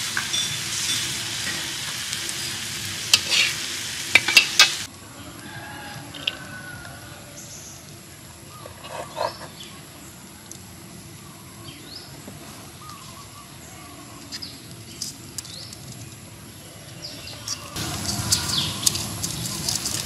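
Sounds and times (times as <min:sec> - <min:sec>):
birds chirping: 0:06.2 - 0:20.0
rustling with crackles: 0:17.2 - 0:20.0.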